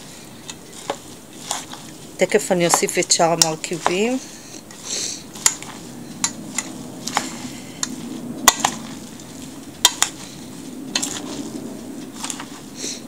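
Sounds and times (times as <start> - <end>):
spoon stirring wet mixture: 0.0 - 13.0
steady low hum: 0.0 - 13.0.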